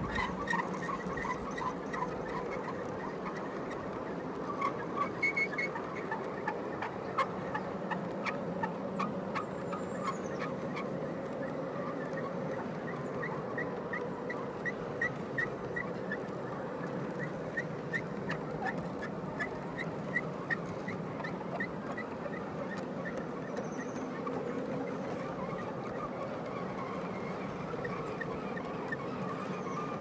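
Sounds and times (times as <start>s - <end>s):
high wheel squeak: 0.0s - 3.7s, 26.5s - 30.0s
wheels clicking over rail joints: 0.0s - 30.0s.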